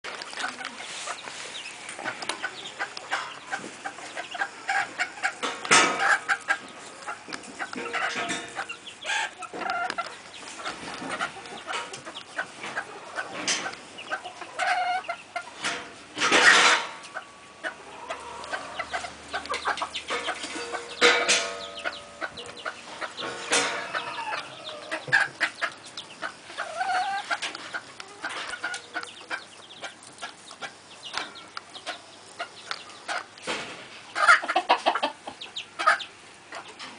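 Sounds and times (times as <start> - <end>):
chickens clucking: 0.1 - 36.9.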